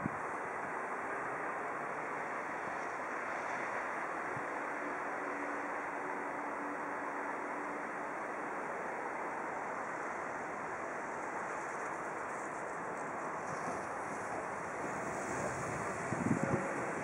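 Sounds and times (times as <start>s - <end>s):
electric locomotive rushing: 0.0s - 17.0s
wind on microphone: 13.5s - 17.0s.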